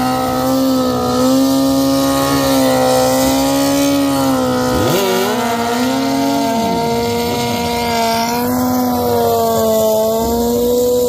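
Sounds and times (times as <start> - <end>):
motorcycle engine at high revs: 0.0 - 11.0.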